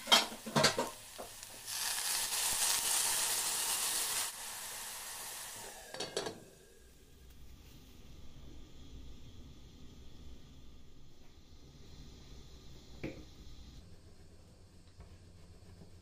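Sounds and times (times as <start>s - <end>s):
water sizzling in hot oil: 0.0s - 7.0s.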